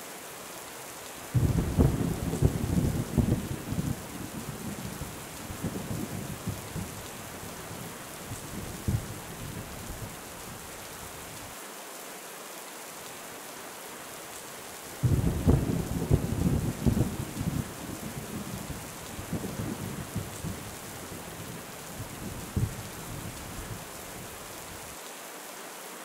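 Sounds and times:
steady rain hiss: 0.0 - 26.0
loud peal of thunder: 1.4 - 7.1, 15.0 - 23.9
low rolling thunder: 1.4 - 11.4, 15.0 - 24.8.

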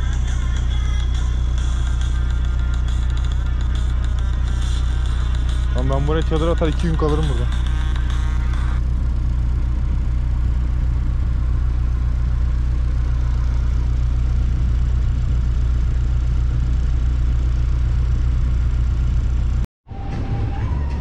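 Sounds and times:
boat engine humming: 0.0 - 20.9.

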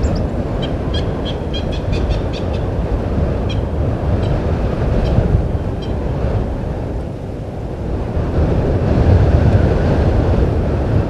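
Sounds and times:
bird calling with metallic notes: 0.0 - 2.6.

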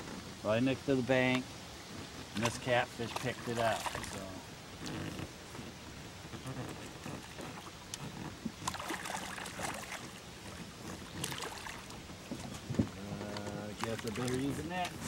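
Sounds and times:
fish splashing in water: 2.3 - 4.4, 6.3 - 12.7, 13.7 - 15.0.

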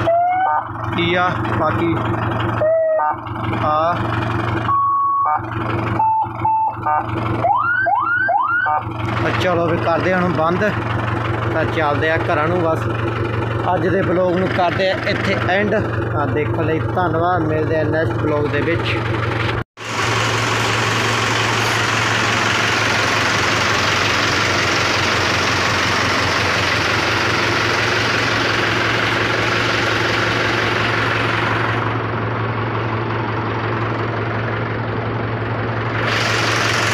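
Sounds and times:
tractor diesel engine idling: 0.0 - 36.9.

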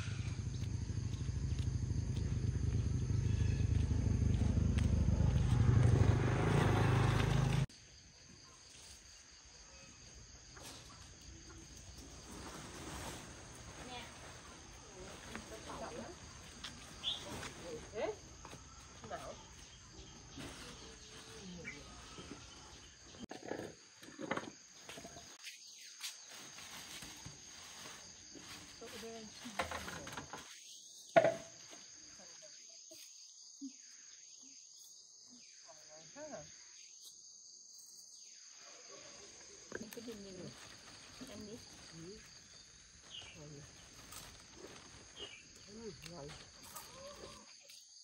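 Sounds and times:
high-pitched insects chirring: 0.0 - 5.9, 30.4 - 48.0
insects chirping: 0.0 - 48.0.

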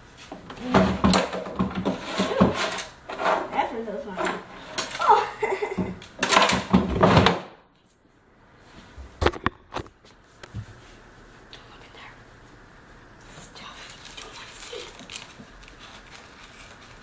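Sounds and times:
desk drawer sliding: 0.4 - 5.2
items clattering in drawer: 0.4 - 7.5.

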